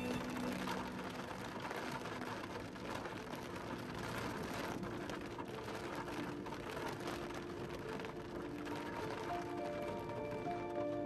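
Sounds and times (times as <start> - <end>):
rain pattering on a windshield: 0.0 - 11.0.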